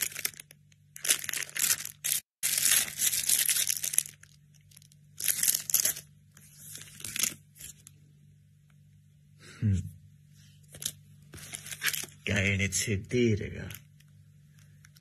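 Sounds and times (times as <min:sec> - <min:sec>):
packaging crinkling and tearing: 0:00.0 - 0:07.9, 0:10.8 - 0:12.3.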